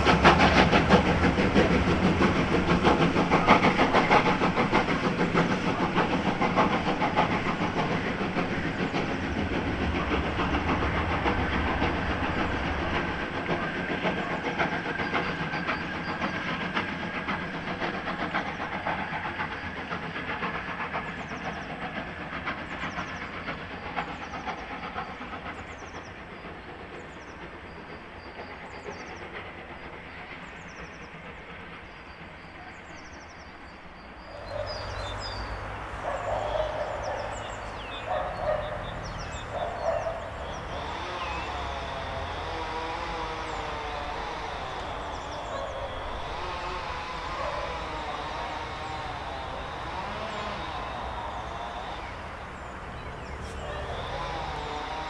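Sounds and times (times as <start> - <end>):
steam hiss: 0.0 - 55.0
steam locomotive exhaust chuff: 0.0 - 55.0
train rail noise: 0.0 - 55.0.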